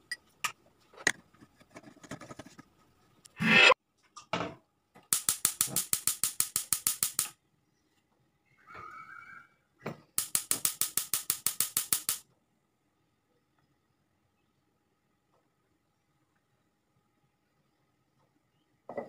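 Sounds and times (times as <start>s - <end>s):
metal pot scraping on grate: 3.4s - 3.8s
stove spark igniter clicking: 5.1s - 7.3s, 10.2s - 12.2s.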